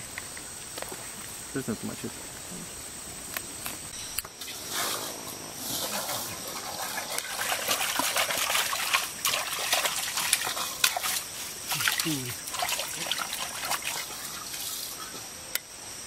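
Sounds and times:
forest insects buzzing: 0:00.0 - 0:16.0
water splashing in metal pot: 0:06.5 - 0:14.7.

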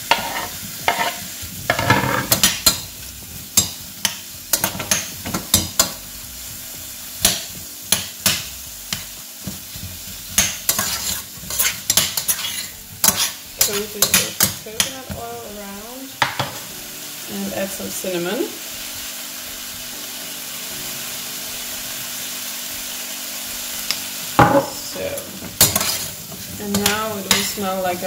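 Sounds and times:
fruit sizzling in hot oil: 0:00.0 - 0:28.0
metal spoon scraping a pot: 0:00.1 - 0:02.8, 0:10.4 - 0:14.5, 0:25.6 - 0:27.5.

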